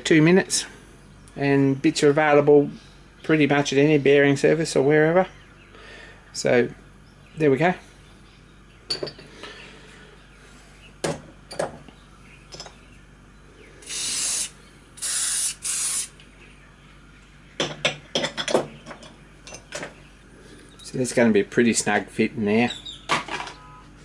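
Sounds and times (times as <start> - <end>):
aerosol can spraying: 13.8 - 16.1.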